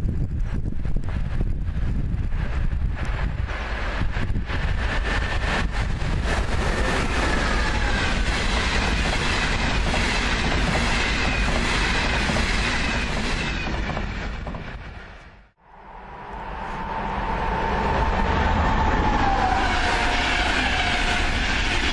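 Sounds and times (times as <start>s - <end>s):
train wheels rushing on rail: 0.1s - 15.5s, 16.3s - 21.9s.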